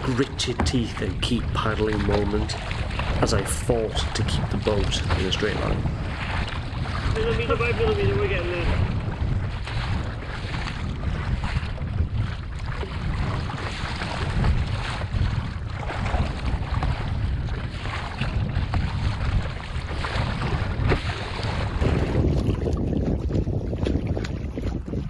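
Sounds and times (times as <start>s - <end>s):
waves slapping against kayak: 0.0s - 25.0s
wind buffeting microphone: 0.0s - 25.0s.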